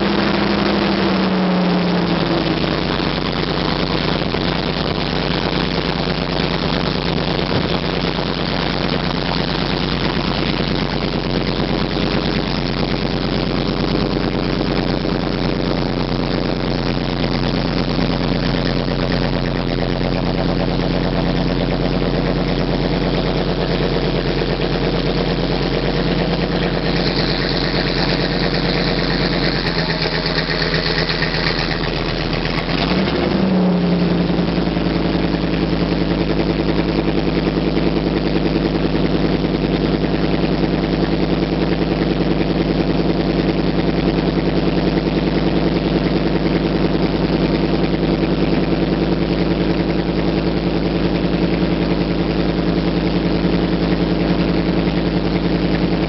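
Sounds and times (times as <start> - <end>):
truck engine revving: 0.0 - 15.0, 15.7 - 36.0.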